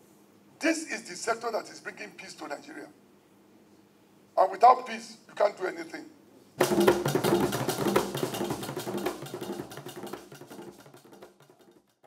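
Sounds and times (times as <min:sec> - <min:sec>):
rapid drum strokes: 0:06.6 - 0:12.0.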